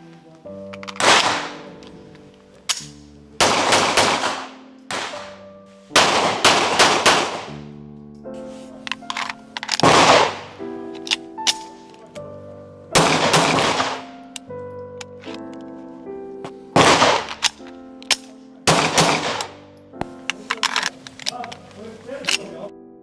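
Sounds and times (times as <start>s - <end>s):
background music with sustained notes: 0.0s - 23.0s
pistol shots with ringing echo: 0.9s - 1.8s, 2.7s - 7.7s, 9.8s - 10.6s, 13.0s - 14.3s, 16.8s - 19.7s.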